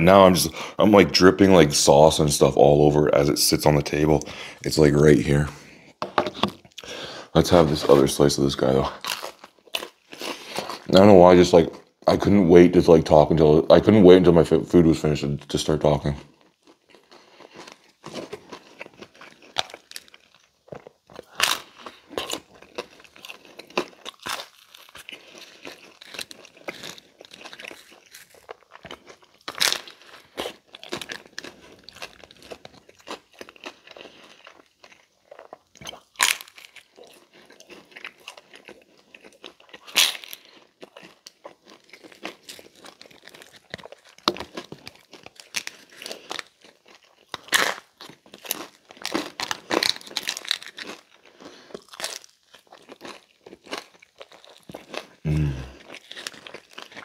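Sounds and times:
chewing and crunching food: 0.0 - 12.4, 15.2 - 57.0
crunchy bites: 6.3 - 11.0, 16.4 - 57.0.

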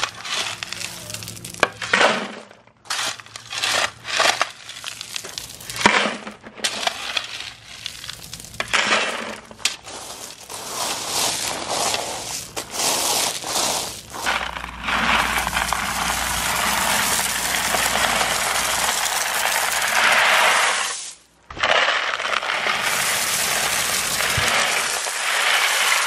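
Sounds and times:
pebbles tipped into plastic bucket: 0.0 - 20.6, 21.5 - 26.0
metal shovel scraping gravel: 0.0 - 26.0
pebbles rattling: 0.0 - 26.0.

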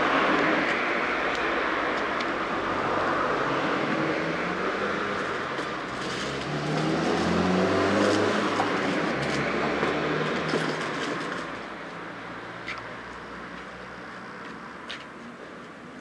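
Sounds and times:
motor vehicle passing: 6.0 - 10.4.

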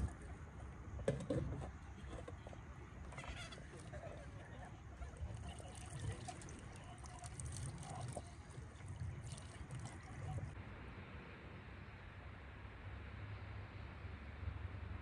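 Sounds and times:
water trickling over hands: 3.2 - 10.6.

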